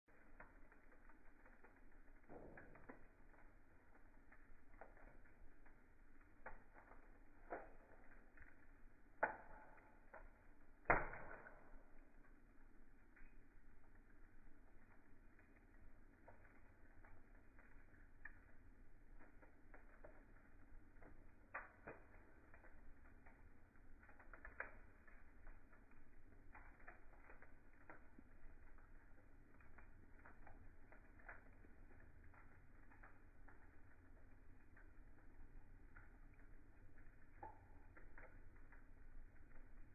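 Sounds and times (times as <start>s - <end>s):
low steady hiss: 0.1s - 39.9s
wood fire crackling: 0.1s - 39.9s.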